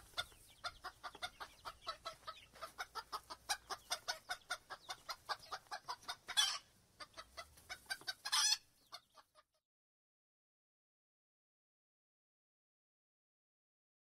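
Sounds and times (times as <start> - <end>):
chicken clucking: 0.0 - 9.6.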